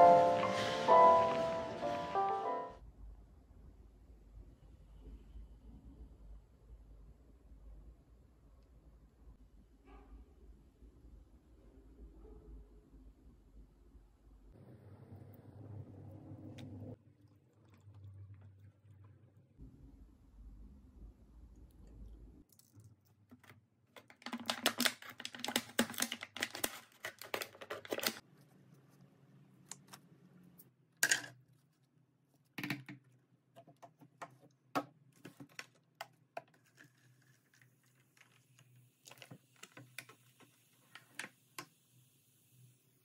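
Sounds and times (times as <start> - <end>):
plastic tube and bottle crackling: 22.4 - 28.9, 32.4 - 41.4.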